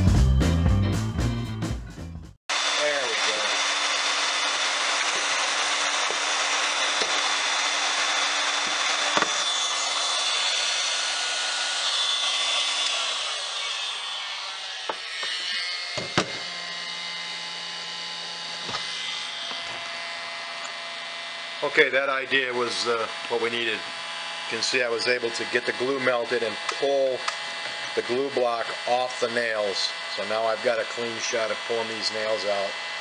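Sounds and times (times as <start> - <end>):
heat gun blowing: 2.5 - 20.8, 21.6 - 33.0
tool clicks and knocks: 8.6 - 9.4, 14.9 - 16.4.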